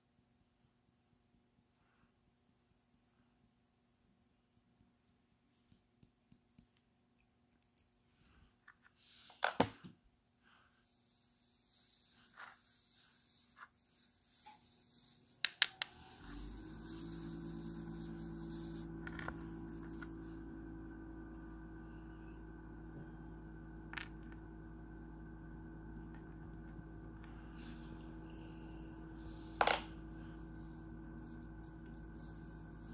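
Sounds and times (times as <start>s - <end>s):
steady low hum: 10.4s - 32.9s.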